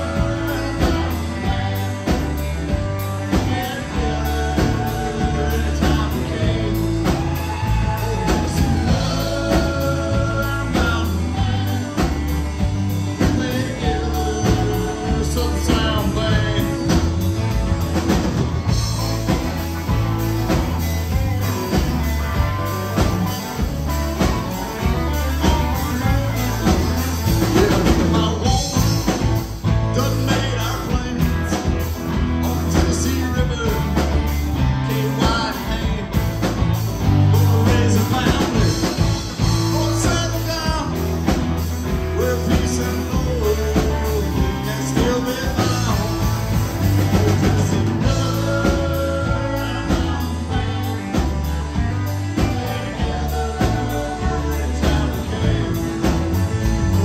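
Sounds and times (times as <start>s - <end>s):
bass guitar: 0.0s - 57.0s
drums: 0.0s - 57.0s
electric guitar: 0.0s - 57.0s.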